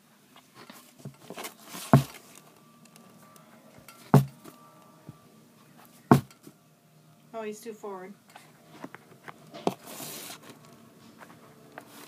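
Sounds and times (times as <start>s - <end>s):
rustling: 0.3s - 2.6s, 8.4s - 12.0s
sharp knocks: 1.9s - 2.2s, 4.1s - 4.4s, 6.1s - 6.4s.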